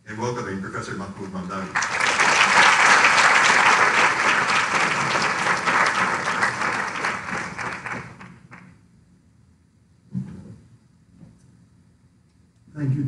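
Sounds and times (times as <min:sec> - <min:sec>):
audience applauding: 0:01.6 - 0:08.7.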